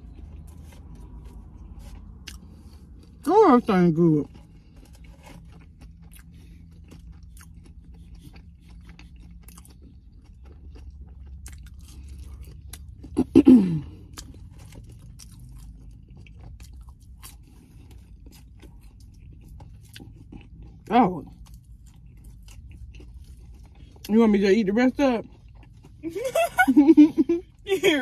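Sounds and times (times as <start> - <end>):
chewing and crunching food: 0.0 - 28.0.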